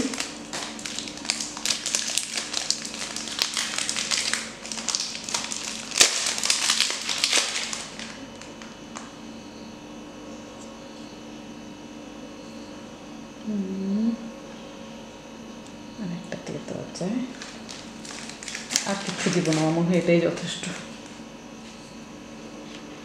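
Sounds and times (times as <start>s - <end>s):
wrapper crinkling: 0.0s - 9.1s, 17.3s - 21.1s
steady low hum: 0.0s - 23.0s.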